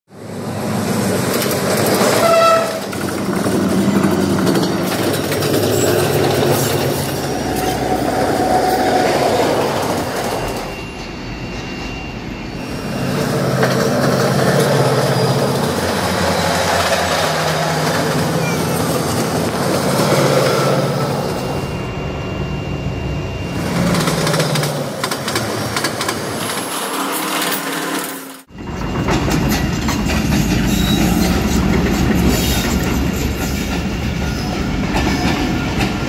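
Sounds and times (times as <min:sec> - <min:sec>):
diesel train engine rumble: 0:00.1 - 0:36.0
wheels clattering over rails: 0:00.8 - 0:10.7, 0:13.0 - 0:21.4, 0:23.6 - 0:36.0
train horn blast: 0:02.0 - 0:03.0.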